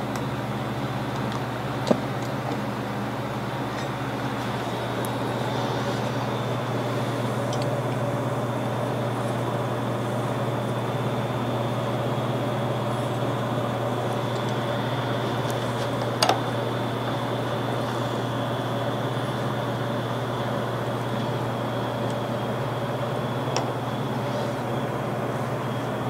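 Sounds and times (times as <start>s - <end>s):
electric motor hum with whine: 0.0s - 26.0s.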